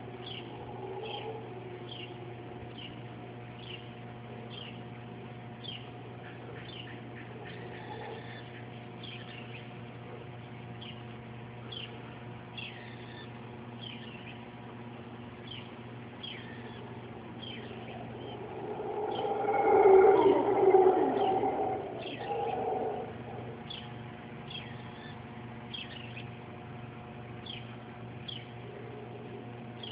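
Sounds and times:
howler monkeys roaring: 0.0s - 2.7s, 7.3s - 8.5s, 17.0s - 24.4s
steady background hum: 0.0s - 29.9s
bird downward-sliding call: 17.7s - 23.9s.

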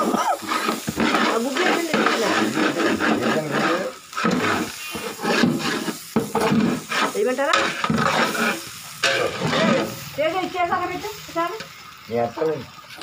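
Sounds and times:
metal paddle scraping pot: 0.0s - 10.0s
people talking: 1.1s - 4.0s, 7.0s - 7.7s, 9.4s - 12.6s.

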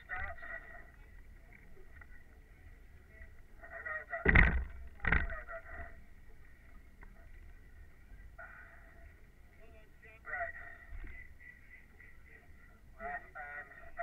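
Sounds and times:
heavy knocks: 4.2s - 5.3s.

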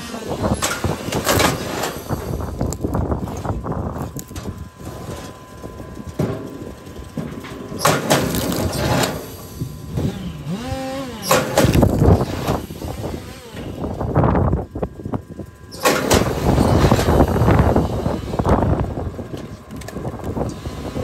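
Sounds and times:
log splitter ram working: 0.0s - 21.0s
wood cracking as it splits: 1.1s - 4.6s, 7.7s - 9.4s, 10.0s - 13.6s.

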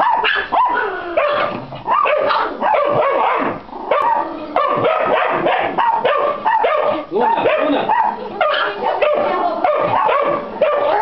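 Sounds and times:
dog barking: 0.0s - 11.0s.

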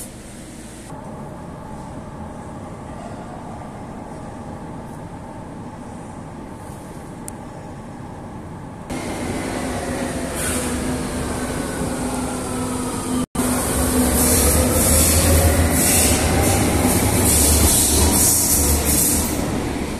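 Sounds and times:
deep train rumble: 8.3s - 19.9s
electric train motor whine: 8.9s - 14.4s.

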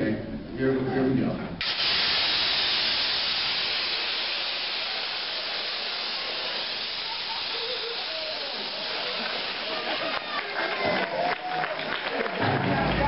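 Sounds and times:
gas cylinder hissing: 1.6s - 11.1s.

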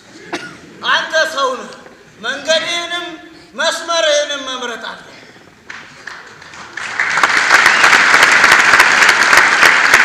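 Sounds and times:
audience applause: 5.7s - 10.0s.

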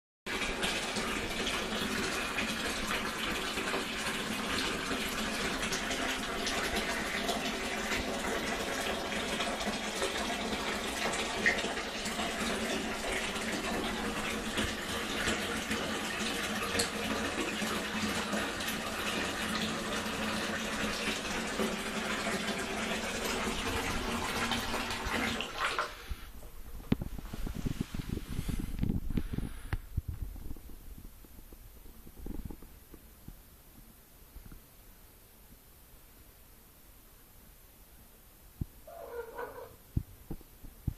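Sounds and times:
bath tap running into tub: 0.3s - 30.6s.

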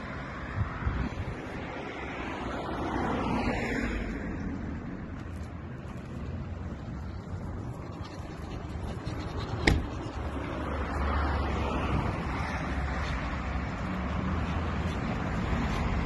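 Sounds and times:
street traffic: 0.0s - 16.0s
vehicle passing: 0.0s - 16.0s
sharp knock: 9.6s - 9.9s.

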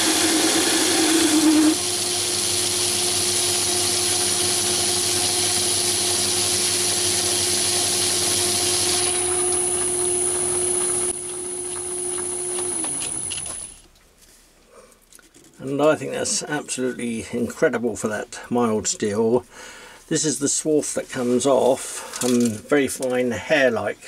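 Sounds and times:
lathe running: 0.0s - 13.7s
motor hum coasting to a stop: 0.0s - 13.8s.

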